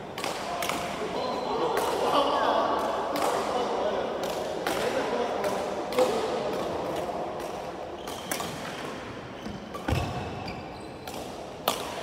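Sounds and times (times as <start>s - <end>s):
racket hitting shuttlecock: 4.2s - 12.0s.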